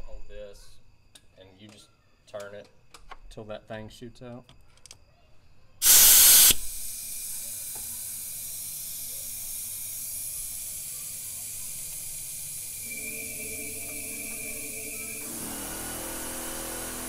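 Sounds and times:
compressed air hissing: 5.8s - 17.0s
faint whistling tone: 12.6s - 15.4s.

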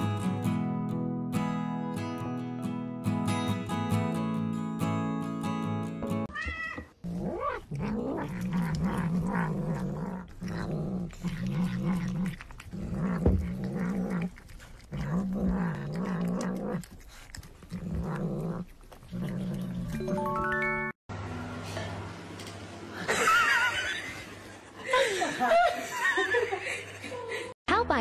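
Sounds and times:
cat growling while eating: 7.0s - 20.0s.

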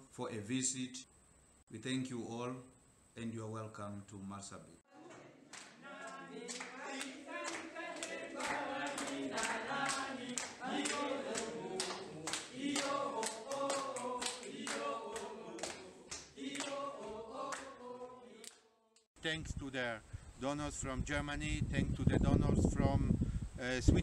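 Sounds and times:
group singing in unison: 4.9s - 19.1s
rhythmic hand-clapping: 5.0s - 18.7s.

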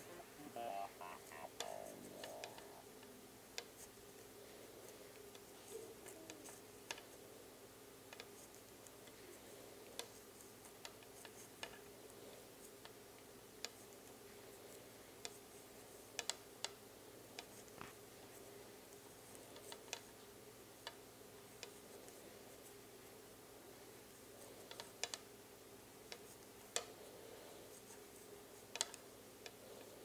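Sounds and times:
knitting needles clicking: 0.0s - 2.8s, 16.2s - 16.8s, 28.7s - 29.6s
low steady hum: 0.0s - 10.0s.

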